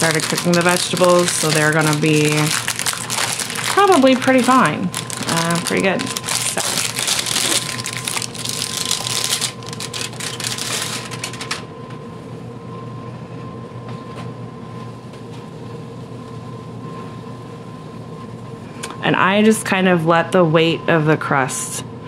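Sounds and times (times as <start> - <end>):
plastic wrapping crinkling: 0.0 - 11.6
appliance hum: 0.0 - 22.0.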